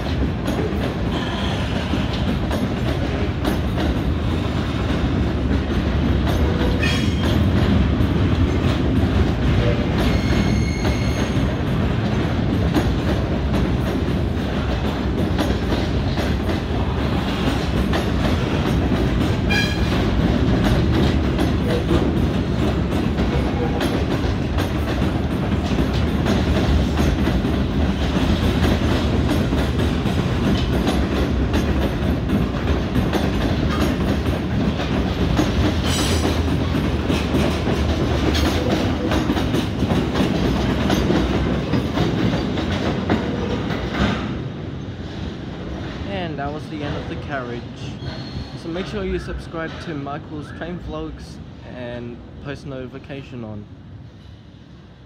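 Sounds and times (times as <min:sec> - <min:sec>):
train wheels rumbling on rails: 0:00.0 - 0:55.0
high wheel squeals: 0:10.0 - 0:11.5, 0:48.0 - 0:48.7.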